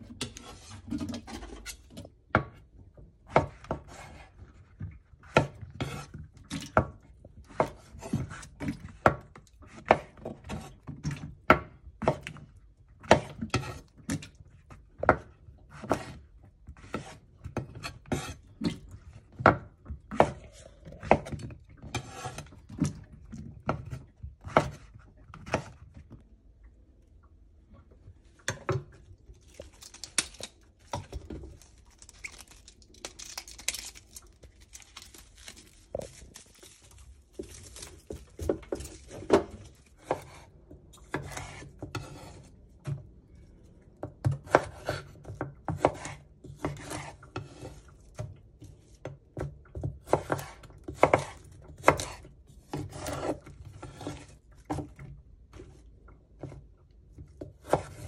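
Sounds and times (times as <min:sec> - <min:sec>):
knife chopping on wooden board: 0:23.7 - 0:25.7, 0:38.4 - 0:40.5, 0:44.2 - 0:47.7, 0:49.4 - 0:54.3, 0:57.6 - 0:58.0.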